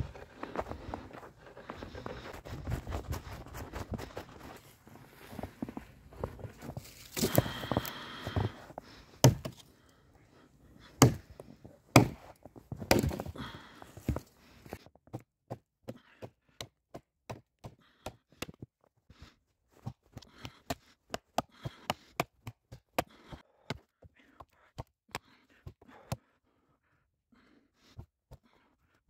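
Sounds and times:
hatchet chopping branch: 0:09.2 - 0:09.6, 0:11.0 - 0:11.2, 0:11.9 - 0:12.2, 0:12.9 - 0:13.2.

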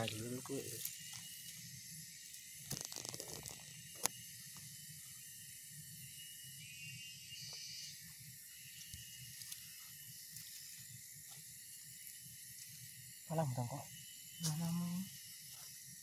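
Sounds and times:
crackling rustle: 0:02.3 - 0:04.2.

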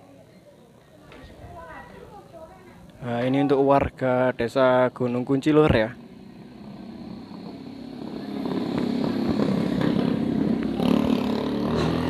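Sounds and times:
motorcycle engine running: 0:05.7 - 0:12.0.

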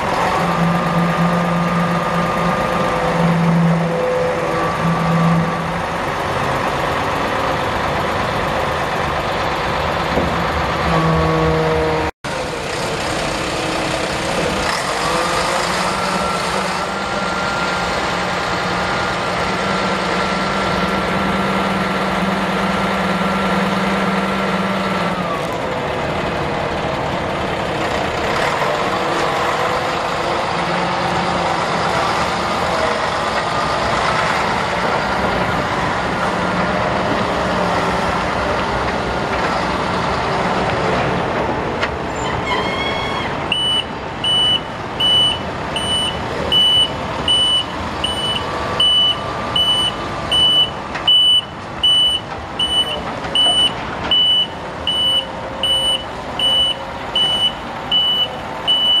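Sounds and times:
diesel truck engine running: 0:00.0 - 0:42.6, 0:43.2 - 0:59.0
reversing alarm beeps: 0:43.0 - 0:59.0.

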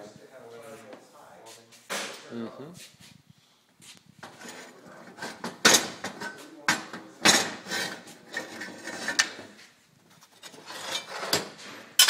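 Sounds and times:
metal scraping and rubbing: 0:04.2 - 0:12.0.

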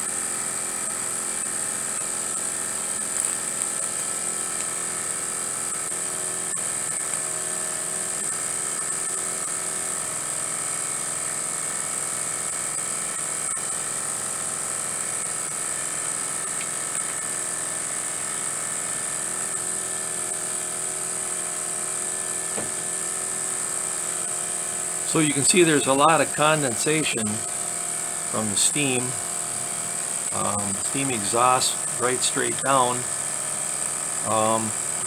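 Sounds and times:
exhaust steam hissing: 0:24.0 - 0:35.0
model steam engine whirring: 0:24.9 - 0:35.0.

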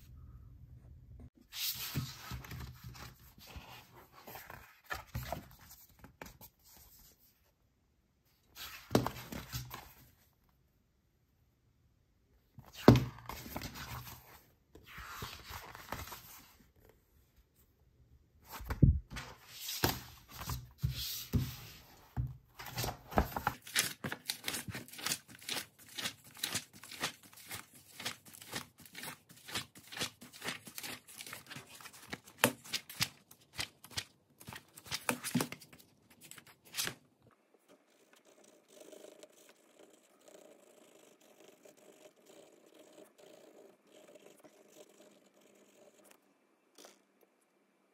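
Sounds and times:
book pages riffled: 0:12.6 - 0:16.5, 0:22.6 - 0:37.0
paper rustling and crackling: 0:22.6 - 0:37.1.

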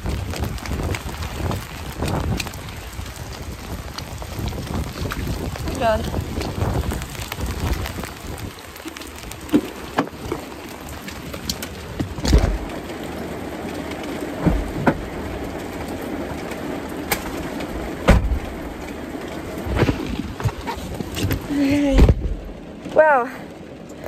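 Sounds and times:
heavy rain on car roof: 0:00.0 - 0:24.0
dull thumps inside car: 0:12.0 - 0:12.7, 0:14.4 - 0:15.1, 0:18.0 - 0:18.6, 0:19.7 - 0:22.5.

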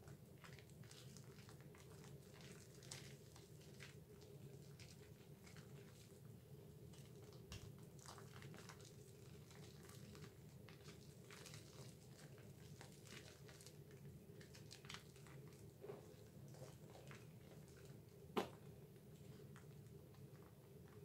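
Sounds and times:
wet soap lather squelches: 0:00.1 - 0:18.3.

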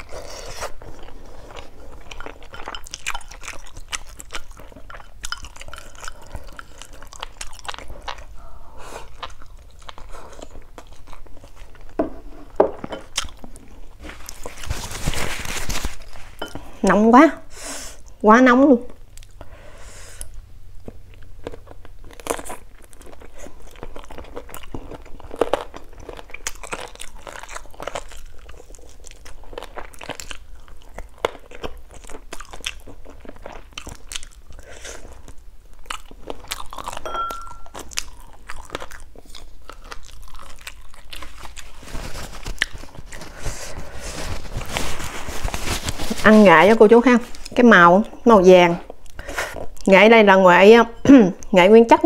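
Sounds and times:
chewing with crunches: 0:00.0 - 0:16.8, 0:20.2 - 0:50.0.

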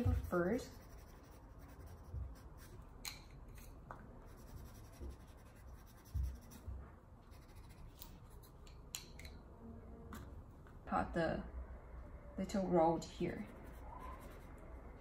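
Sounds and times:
pencil scratching on paper: 0:00.0 - 0:02.8, 0:04.3 - 0:08.5.

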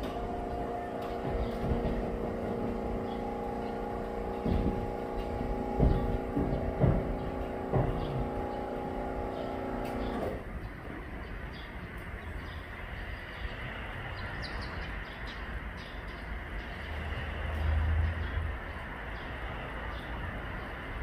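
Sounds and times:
knocks: 0:00.0 - 0:10.2
engine idling hum: 0:00.0 - 0:10.8.

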